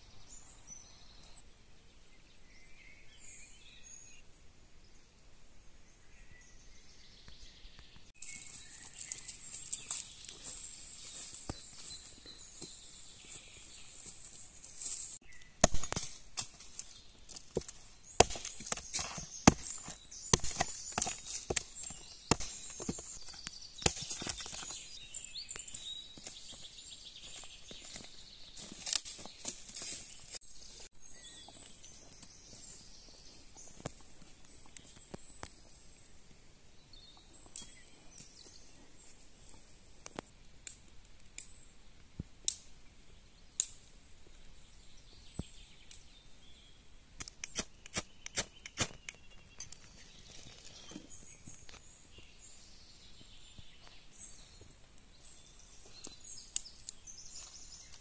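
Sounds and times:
hatchet chopping branch: 15.6 - 24.8.

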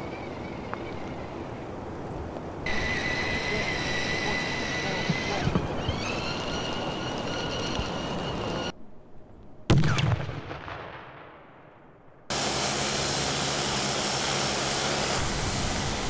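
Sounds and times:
rushing noise: 2.6 - 8.7, 12.3 - 16.0
robot motors whining: 2.7 - 8.7.

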